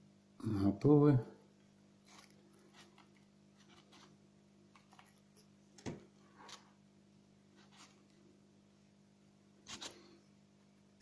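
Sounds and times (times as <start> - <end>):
low steady hum: 0.0 - 11.0
handling rustles and taps: 2.1 - 6.7.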